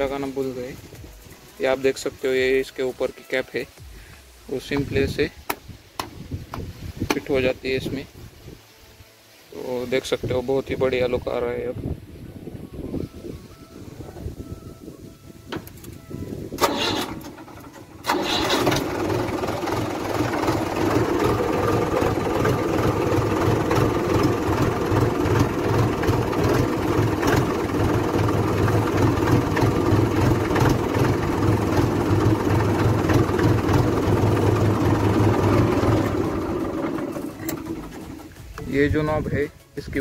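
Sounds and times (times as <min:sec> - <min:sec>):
tractor diesel engine idling: 0:16.0 - 0:39.2.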